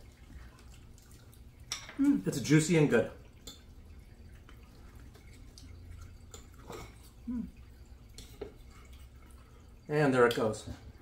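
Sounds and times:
person humming briefly: 0:07.3 - 0:07.5.

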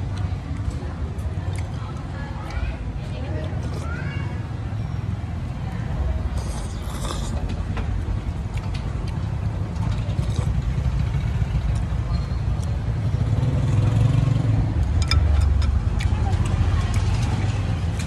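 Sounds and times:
road traffic rumbling: 0:00.0 - 0:18.0
noodle slurp: 0:06.3 - 0:07.5.

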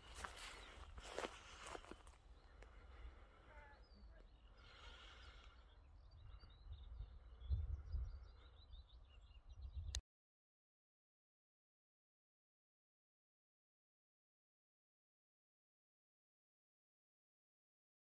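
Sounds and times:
footsteps: 0:00.0 - 0:02.2
faint bird chirps: 0:00.0 - 0:10.0
wind rumble on microphone: 0:06.0 - 0:10.0.

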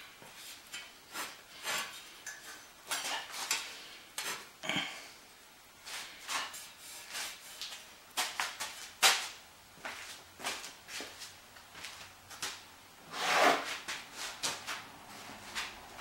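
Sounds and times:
rustling scrape: 0:00.2 - 0:04.5, 0:05.8 - 0:07.8, 0:13.1 - 0:15.8.

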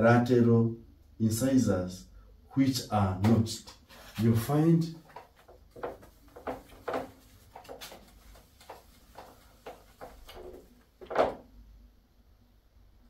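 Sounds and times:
whiteboard eraser rubbing: 0:05.3 - 0:10.8.

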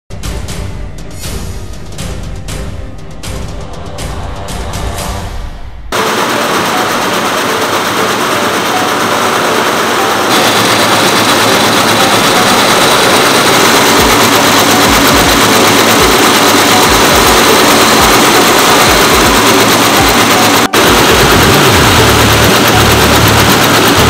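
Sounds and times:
quilting machine running: 0:05.9 - 0:24.0.

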